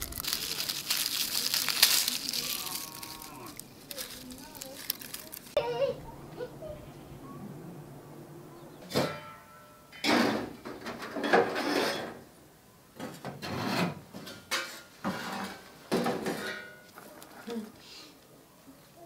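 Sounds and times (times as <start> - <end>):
dry twigs crackling and breaking: 0.0 - 5.6.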